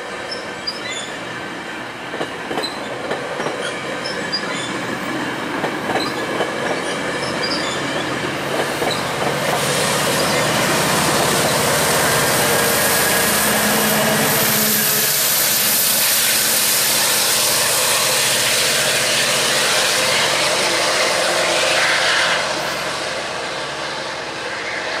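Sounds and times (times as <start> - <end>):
diesel locomotive engine: 0.0 - 25.0
train wheels on rails: 0.0 - 25.0.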